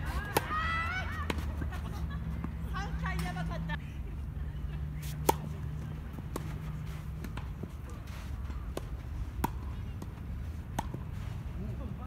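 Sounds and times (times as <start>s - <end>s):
tennis ball bouncing: 0.0s - 3.6s, 5.0s - 11.1s
racket striking tennis ball: 5.0s - 5.6s, 8.7s - 10.1s.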